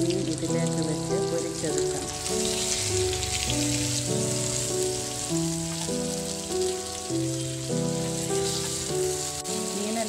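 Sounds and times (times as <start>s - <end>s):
fish sizzling in oil: 0.0s - 10.0s
instrumental background music: 0.0s - 10.0s.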